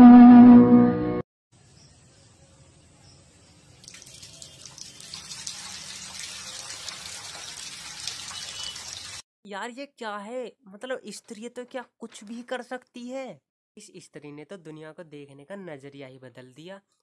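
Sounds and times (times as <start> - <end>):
water running and splashing: 3.3 - 9.2.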